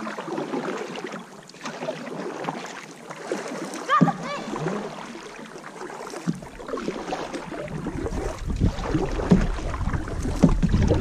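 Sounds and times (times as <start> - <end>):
knocks and splashes: 0.0 - 11.0
water against canoe hull: 0.0 - 11.0
wind rumbling on microphone: 7.5 - 11.0.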